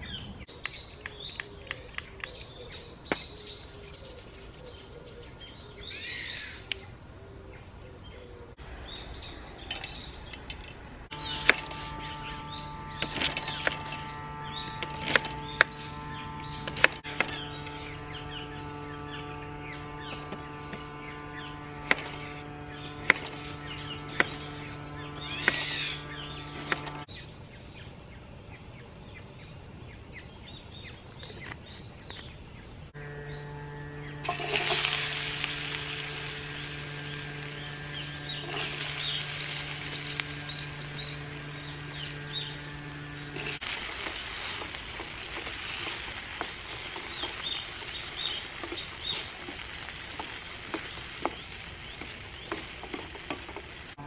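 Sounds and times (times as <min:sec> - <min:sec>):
potato sizzling in frying pan: 0:34.2 - 0:54.0
wooden spatula scraping pan: 0:34.2 - 0:54.0.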